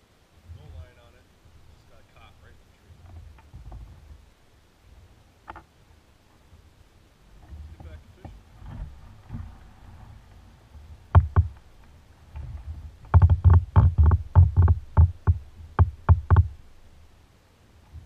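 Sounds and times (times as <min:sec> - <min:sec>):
paddle knocking on hollow hull: 0:10.9 - 0:16.6.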